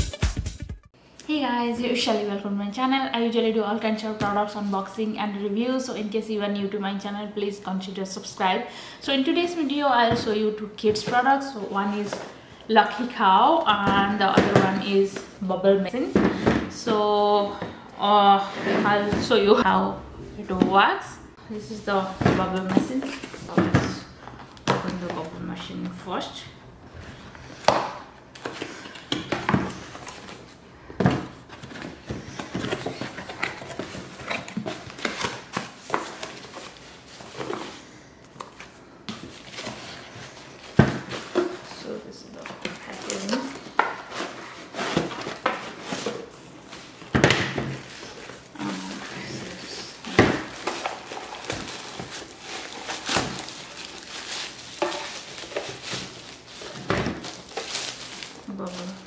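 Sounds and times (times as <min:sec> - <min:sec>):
cardboard and paper rustling: 0:27.0 - 0:59.0.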